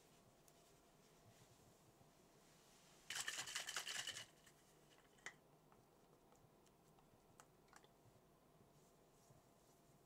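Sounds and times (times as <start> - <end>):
rapid rustling and clicking: 3.1 - 5.3.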